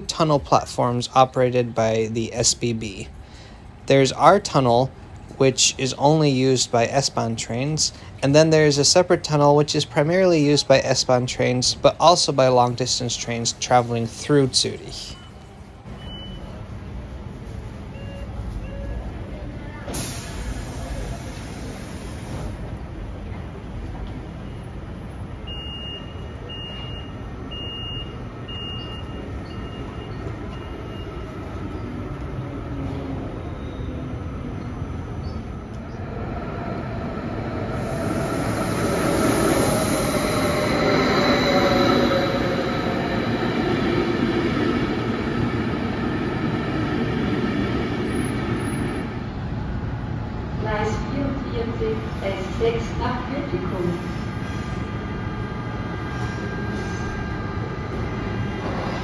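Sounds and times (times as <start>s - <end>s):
door-closing warning beeps: 15.2s - 16.6s, 17.9s - 19.0s, 25.4s - 31.2s
electric train pulling in: 26.3s - 59.0s
train wheel squeal: 33.2s - 35.5s, 37.8s - 45.0s.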